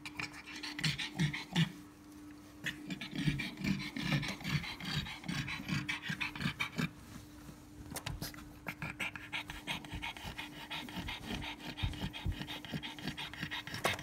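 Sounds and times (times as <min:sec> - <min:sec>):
dog panting rapidly: 0:02.7 - 0:06.9, 0:08.7 - 0:14.0.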